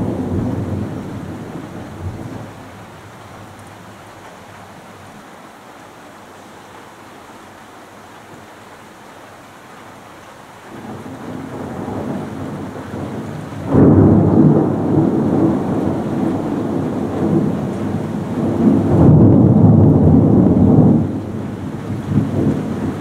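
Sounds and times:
thunder rumbling: 0:00.0 - 0:03.1, 0:10.7 - 0:23.0
steady rain: 0:00.0 - 0:23.0.

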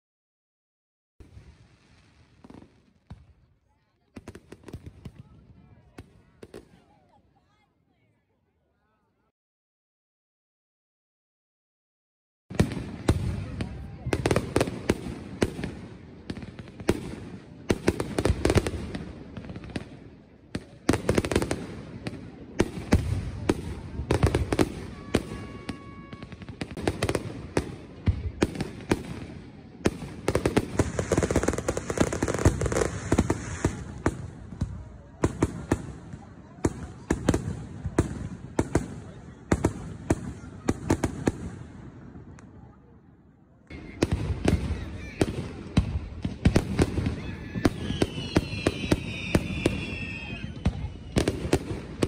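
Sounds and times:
firework crackling: 0:12.6 - 0:41.7, 0:43.7 - 0:52.0.

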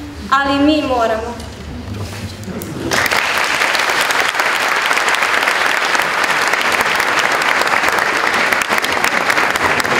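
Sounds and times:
audience applauding: 0:02.8 - 0:09.9.

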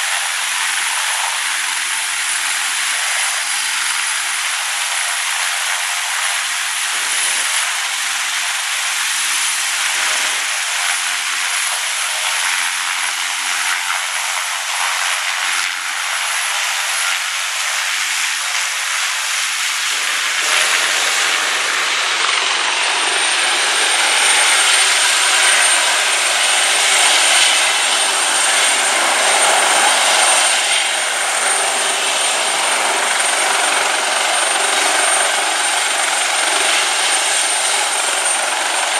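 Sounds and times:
helicopter engines and rotors: 0:00.0 - 0:38.9
high turbine whine: 0:09.7 - 0:38.9.

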